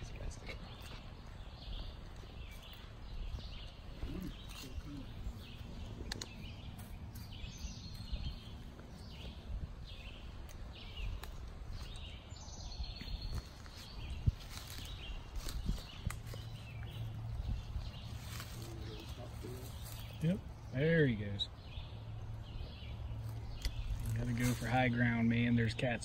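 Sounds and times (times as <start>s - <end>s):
footsteps swishing through grass: 13.0s - 20.2s.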